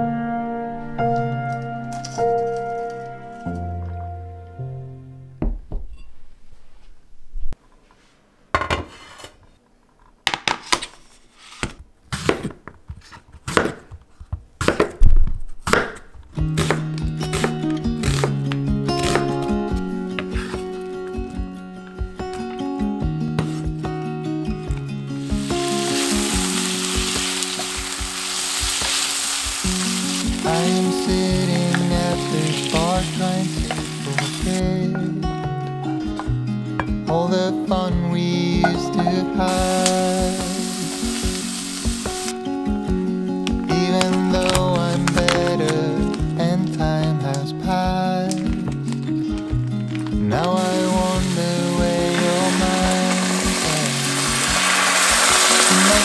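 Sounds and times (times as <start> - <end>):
soft background music: 0.0 - 5.4, 16.4 - 56.0
knife chopping on wooden board: 13.4 - 14.0, 14.6 - 15.0
chicken sizzling in a pan: 25.2 - 34.6, 39.5 - 42.3, 50.6 - 56.0
wooden spatula turning food: 25.2 - 34.6.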